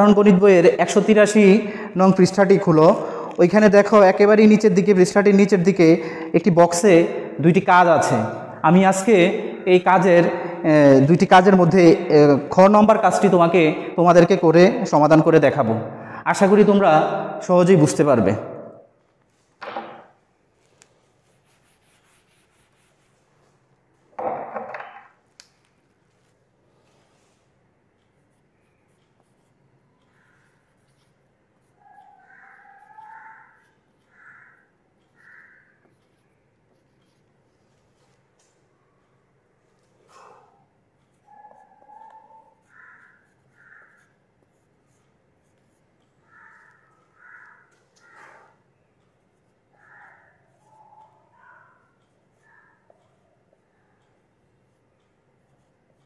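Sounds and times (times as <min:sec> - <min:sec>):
loud knock: 0:19.6 - 0:20.1
marker squeaking on whiteboard: 0:19.8 - 0:23.7, 0:26.1 - 0:56.0
duster rubbing on whiteboard: 0:21.0 - 0:23.6.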